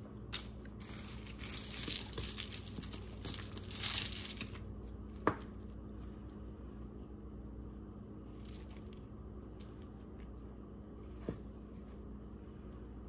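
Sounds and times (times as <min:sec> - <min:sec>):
packaging crinkling: 0:00.8 - 0:04.6.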